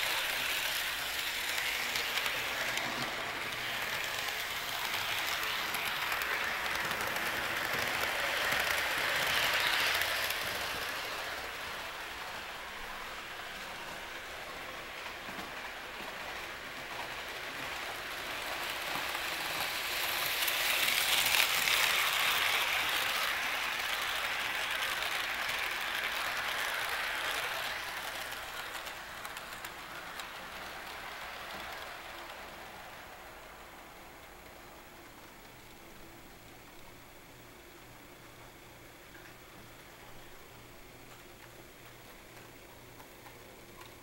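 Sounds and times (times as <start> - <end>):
model train rolling on track: 0.0 - 44.0.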